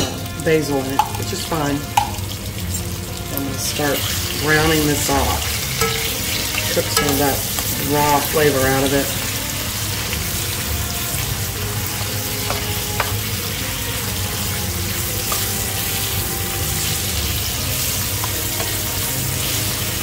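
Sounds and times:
vegetables sizzling in a pan: 0.0 - 20.0
spoon scraping a pan: 1.0 - 20.0
metal spoon stirring: 3.8 - 9.2, 11.9 - 13.7.

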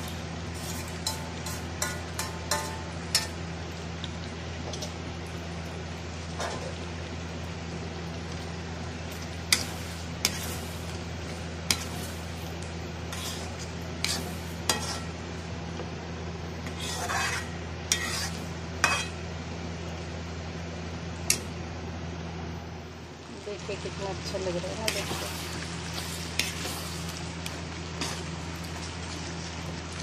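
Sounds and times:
gravy sizzling: 0.0 - 30.0
steady low hum: 0.0 - 30.0
metal spatula clinking on pan: 1.0 - 3.3.

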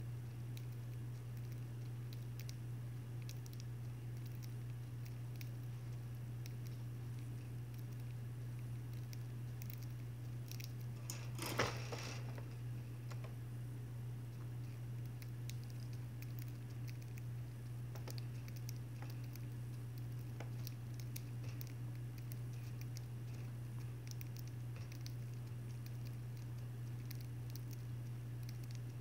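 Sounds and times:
steady low hum: 0.0 - 29.0
birds cracking seeds: 14.3 - 29.0.

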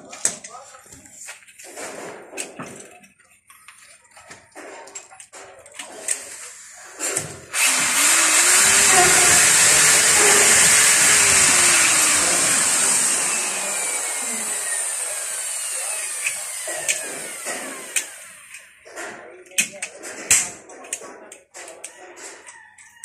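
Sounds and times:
electric drill boring into wood: 7.1 - 18.7.

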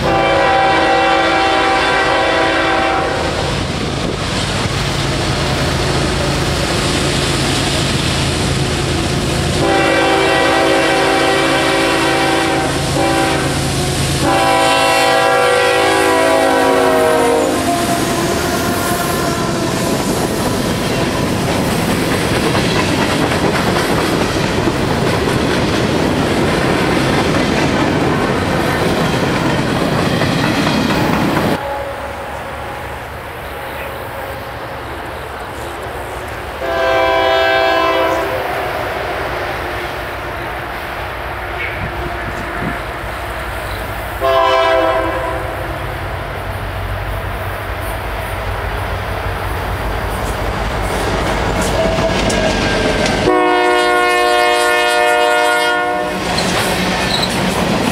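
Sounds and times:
locomotive air horn blasts: 0.0 - 3.6, 9.5 - 19.9, 31.5 - 32.9, 36.6 - 39.2, 44.2 - 45.8, 53.2 - 56.3
diesel locomotive engine running: 0.0 - 55.3
train wheels clattering on rails: 17.6 - 31.6, 47.9 - 53.6, 56.1 - 57.9.

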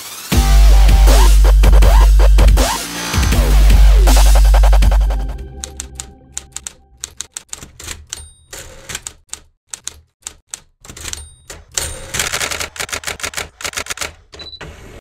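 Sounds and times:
typewriter keys clacking: 5.6 - 14.3
typewriter bell dings: 8.1 - 8.9, 10.9 - 12.4.

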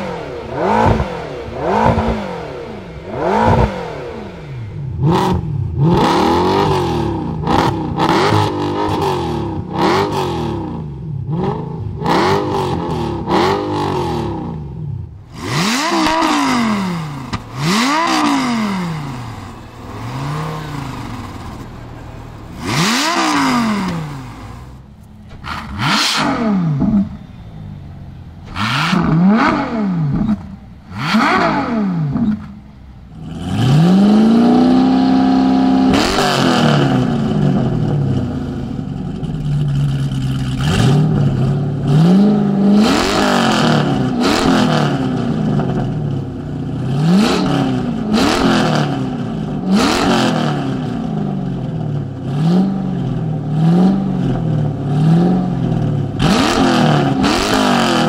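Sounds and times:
second car engine revving: 0.0 - 58.0
sports car engine revving: 0.0 - 58.0.

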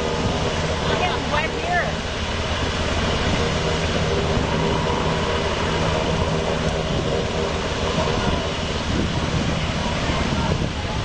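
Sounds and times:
aircraft engine drone: 0.0 - 11.0.

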